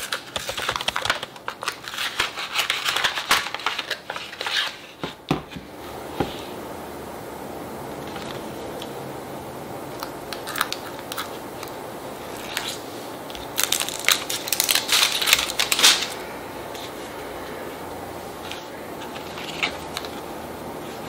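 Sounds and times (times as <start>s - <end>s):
paper crinkling and scraping: 0.0s - 5.2s, 10.6s - 17.5s, 18.4s - 21.0s.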